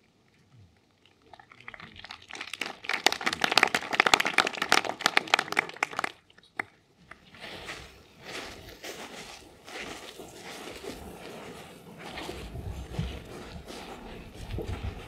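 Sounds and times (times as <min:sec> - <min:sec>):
audience applauding: 0:02.2 - 0:06.7.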